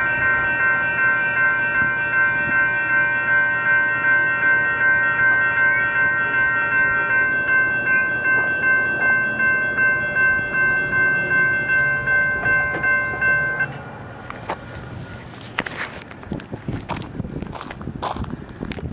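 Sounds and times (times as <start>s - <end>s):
light-rail warning bell ringing: 0.0s - 14.2s.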